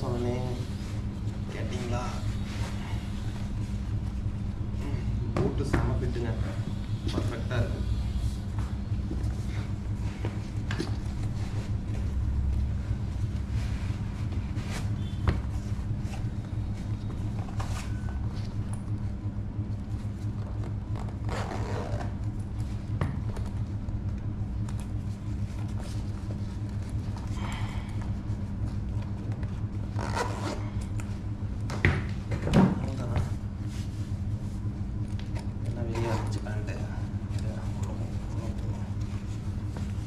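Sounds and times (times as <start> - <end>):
steady low hum: 0.0 - 40.0
zipper pulls: 21.0 - 22.1, 29.9 - 30.9.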